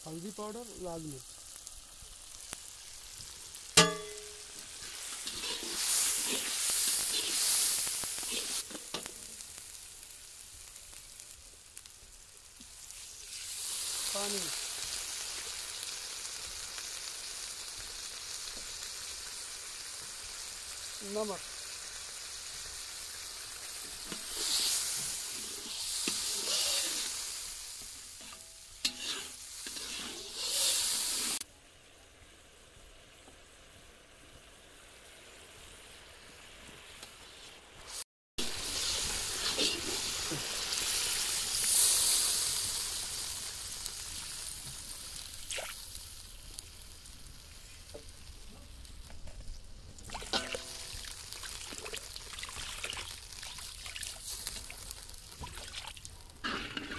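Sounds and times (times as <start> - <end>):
masala sizzling in a pan: 0.0 - 56.9
metal spatula scraping: 3.8 - 9.1, 24.0 - 27.2, 28.2 - 31.4, 38.8 - 40.1, 56.4 - 56.9
water pouring: 50.0 - 54.8, 55.4 - 56.9.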